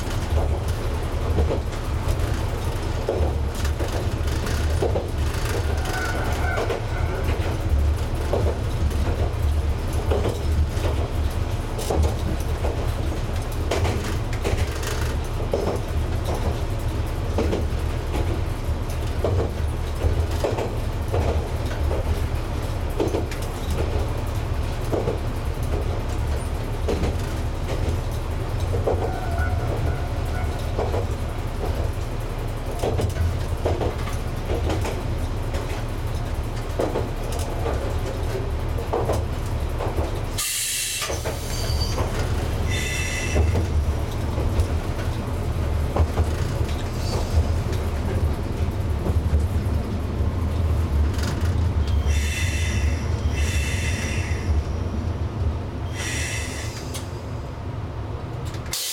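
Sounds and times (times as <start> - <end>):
rail joint clicks: 0.0 - 58.9
wheel squeals: 40.7 - 42.1.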